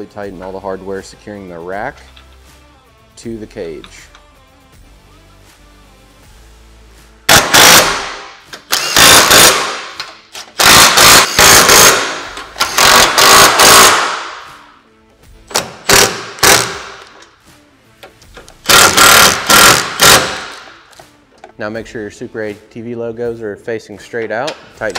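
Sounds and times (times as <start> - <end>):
impact wrench hammering bolts: 7.3 - 14.6, 15.5 - 17.3, 18.0 - 21.6.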